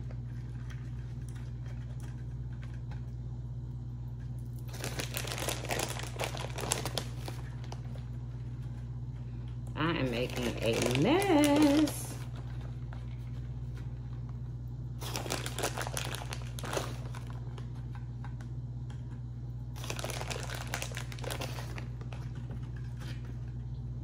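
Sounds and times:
steady low hum: 0:00.0 - 0:24.0
plastic bag crinkling: 0:04.6 - 0:08.7, 0:09.8 - 0:13.4, 0:15.0 - 0:18.0, 0:19.8 - 0:23.0.

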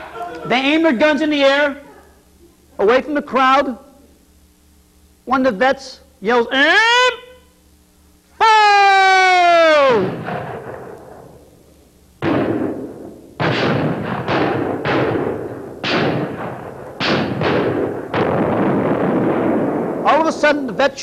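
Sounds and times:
gunshots with echoing tail: 0:09.9 - 0:11.6, 0:12.2 - 0:20.3.

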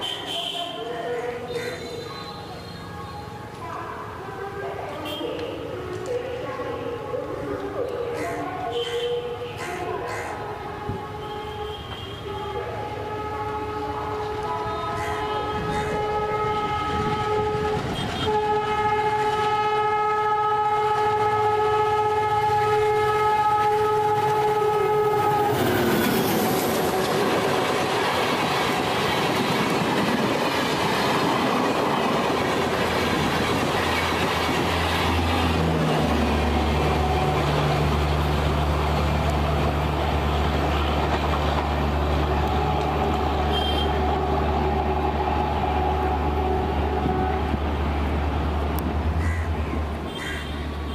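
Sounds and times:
locomotive horn blast: 0:10.4 - 0:28.6, 0:33.5 - 0:38.1, 0:42.2 - 0:48.2
train rushing past: 0:12.8 - 0:50.9.

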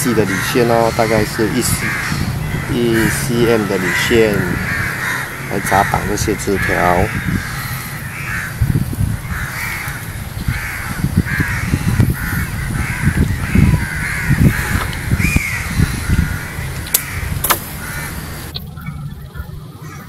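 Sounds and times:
crows cawing: 0:00.0 - 0:18.5
low thumps and rumble: 0:00.8 - 0:19.6
sharp click: 0:16.9 - 0:17.7.

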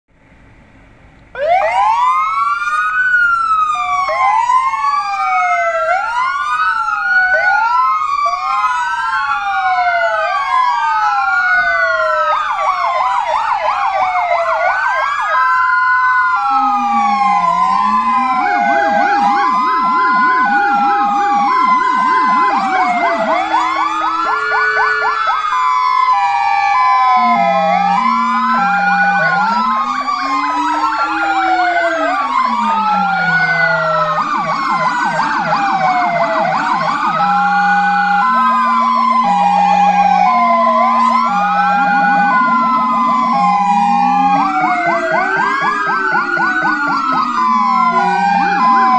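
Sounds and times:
fire engine sirens wailing: 0:00.2 - 0:48.9
two-tone hi-lo siren: 0:01.3 - 0:48.9
fast siren yelp: 0:01.4 - 0:48.9.

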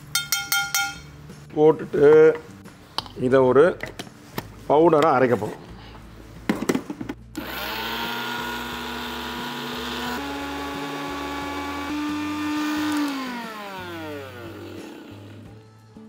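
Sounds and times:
mixer grinder motor whining: 0:07.4 - 0:15.6.

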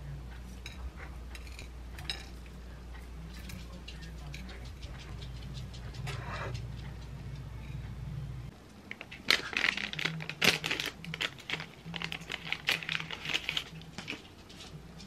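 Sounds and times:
paper sachet tearing and crinkling: 0:09.0 - 0:14.2.

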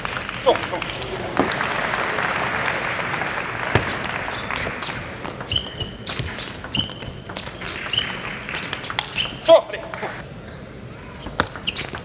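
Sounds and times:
crowd applause: 0:00.0 - 0:05.2.

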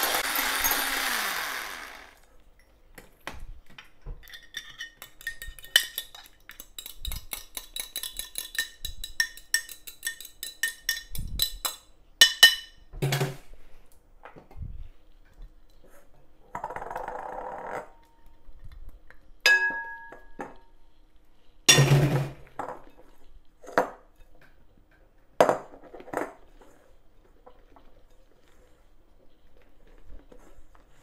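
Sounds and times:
utensils and dishes clinking: 0:04.2 - 0:13.4.

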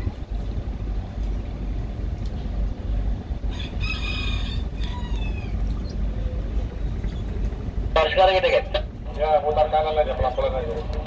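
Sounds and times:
steady low rumble: 0:00.0 - 0:11.0
rooster crowing: 0:03.5 - 0:05.6.

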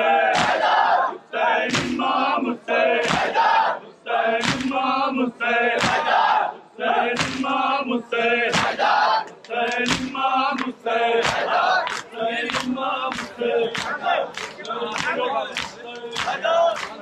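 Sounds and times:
crowd chanting in unison: 0:00.0 - 0:17.0
collective chest-beating slaps: 0:00.3 - 0:00.7, 0:01.7 - 0:02.1, 0:03.0 - 0:03.4, 0:04.4 - 0:04.8, 0:05.7 - 0:06.1, 0:07.1 - 0:07.6, 0:08.5 - 0:17.0.

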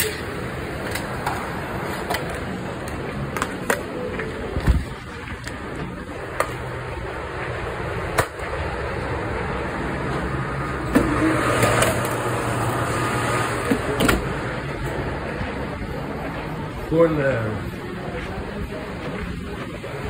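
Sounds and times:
kitchen machinery hum: 0:00.0 - 0:20.0.

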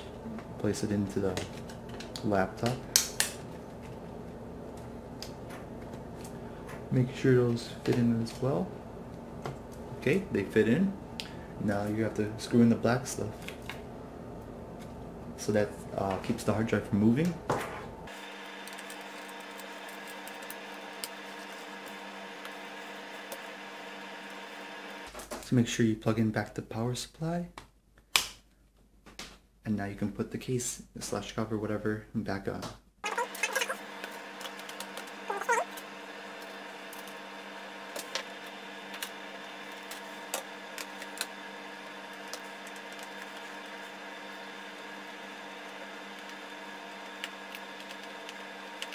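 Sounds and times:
faint hum: 0:00.0 - 0:25.1.

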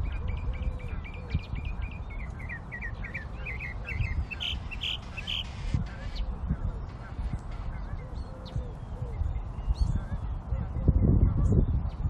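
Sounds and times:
small bird chirping: 0:00.0 - 0:06.3.

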